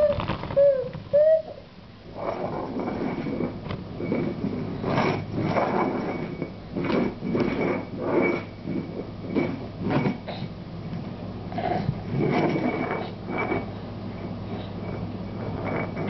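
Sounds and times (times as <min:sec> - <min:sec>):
dog bowl scraping across tile floor: 0:02.1 - 0:10.3, 0:11.9 - 0:16.0.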